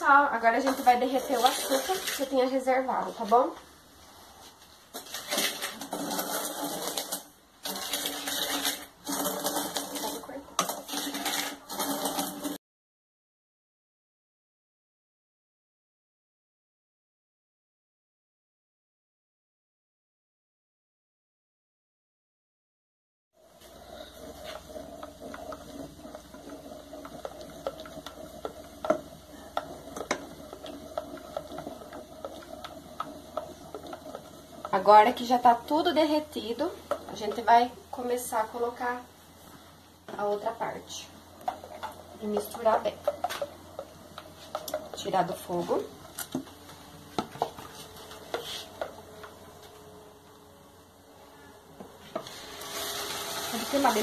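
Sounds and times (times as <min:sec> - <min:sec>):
spoon scraping sugar in saucepan: 0:00.4 - 0:03.3, 0:05.0 - 0:12.6, 0:41.5 - 0:46.2, 0:47.7 - 0:49.0, 0:52.2 - 0:54.0
wooden spoon scraping metal pot: 0:00.4 - 0:03.5, 0:04.9 - 0:12.6, 0:23.5 - 0:49.8, 0:51.4 - 0:54.0.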